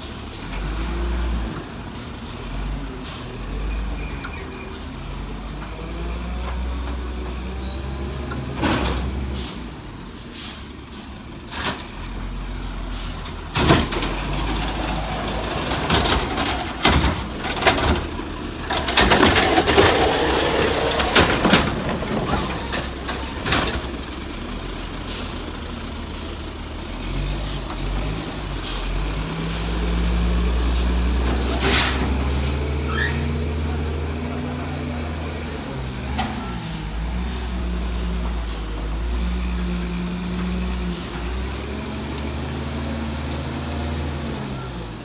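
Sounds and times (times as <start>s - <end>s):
side-loader arm clanking and banging: 4.0s - 10.7s, 11.4s - 26.4s, 27.0s - 45.0s
air brake hiss: 9.2s - 11.1s
truck engine revving: 13.0s - 45.0s.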